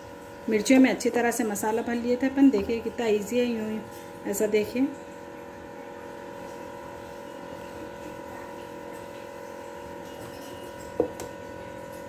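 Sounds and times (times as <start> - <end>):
steady hum: 0.0 - 10.2.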